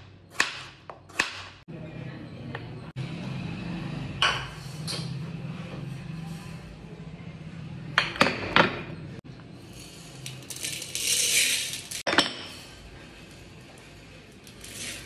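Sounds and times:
lentils poured into metal pot: 9.7 - 12.0, 14.3 - 15.0.

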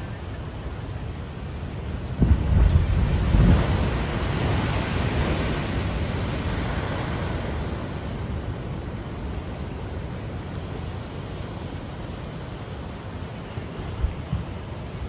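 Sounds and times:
rush of spray and foaming water: 0.0 - 15.0.

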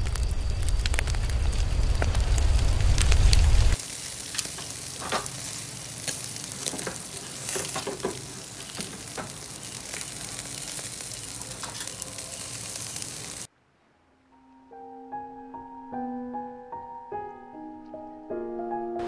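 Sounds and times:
meat sizzling on a grill: 0.0 - 13.5.

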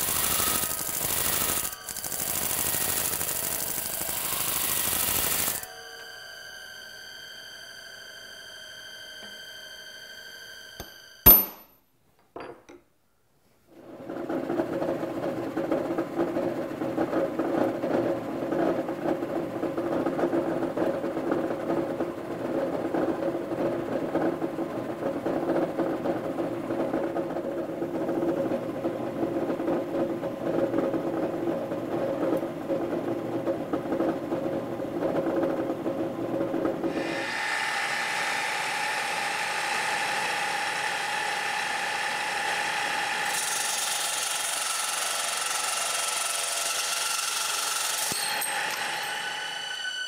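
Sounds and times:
drill boring through aluminum: 0.0 - 6.1, 36.9 - 50.0
sharp click: 10.8 - 11.8.

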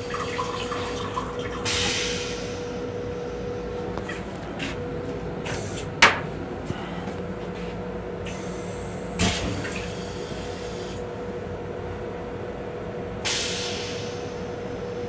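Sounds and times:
toilet flushing: 0.0 - 4.8, 9.1 - 11.1
steady hum: 0.0 - 13.3.

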